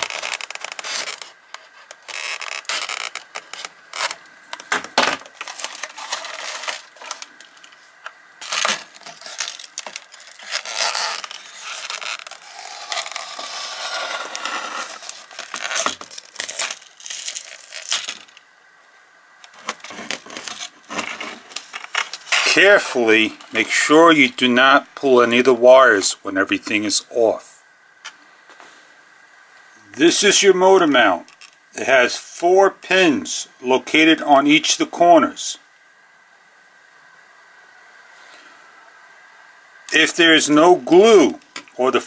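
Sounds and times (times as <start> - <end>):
tape peeling off: 0.0 - 18.4, 19.4 - 22.6.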